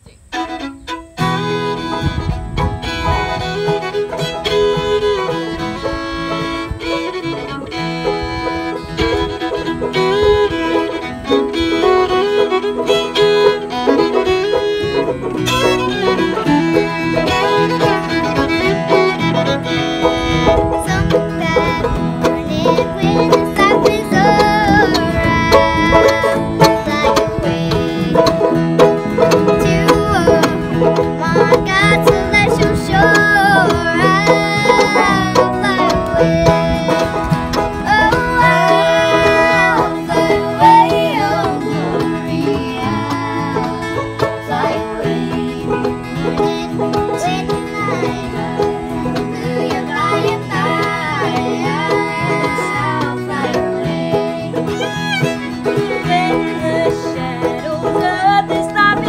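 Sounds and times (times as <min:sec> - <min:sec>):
acoustic guitar: 0:00.0 - 0:59.0
fiddle: 0:00.0 - 0:59.0
banjo: 0:00.1 - 0:59.0
girls singing: 0:15.0 - 0:59.0.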